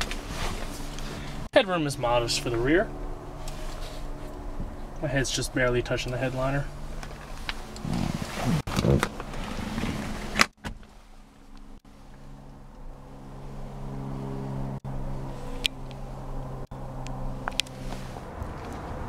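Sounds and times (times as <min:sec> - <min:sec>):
vehicle engine humming: 0:00.0 - 0:19.0.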